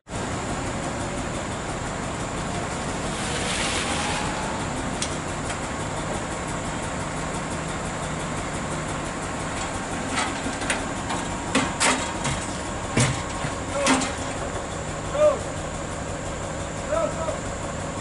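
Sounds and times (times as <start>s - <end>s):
diesel engine idling: 0.1s - 18.0s
sharp knocks or clanks: 10.1s - 14.4s.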